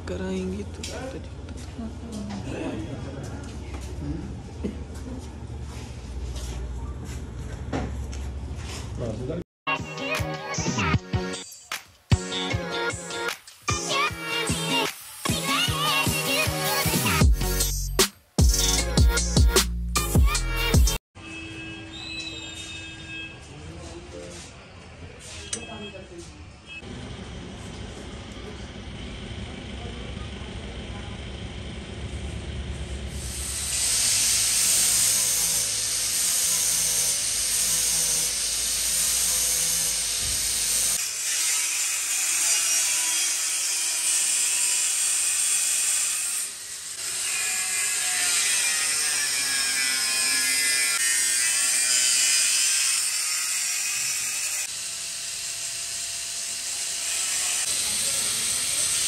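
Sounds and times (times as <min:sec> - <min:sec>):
angle grinder cutting sheet metal: 0:12.4 - 0:19.3, 0:33.1 - 0:59.0.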